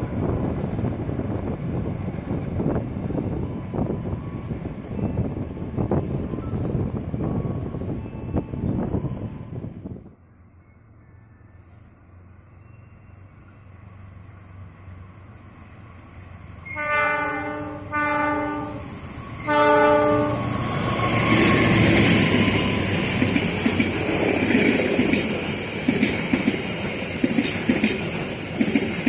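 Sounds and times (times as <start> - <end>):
diesel locomotive rumble: 11.4 - 29.0
multi-tone train horn: 16.6 - 21.8.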